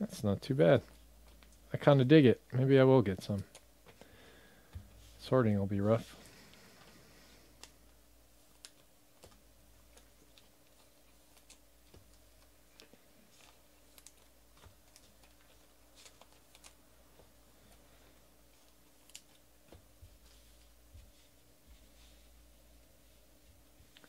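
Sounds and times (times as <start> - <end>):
room hum: 0.0 - 24.0.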